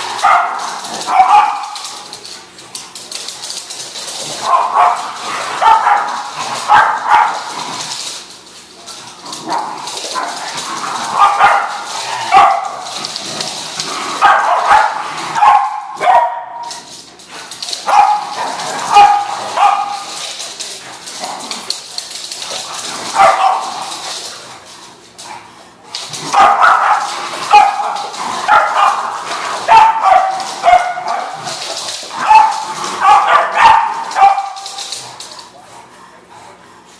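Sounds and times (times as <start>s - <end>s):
dogs barking: 0.0s - 2.5s, 4.2s - 8.1s, 8.8s - 25.1s, 25.9s - 35.5s.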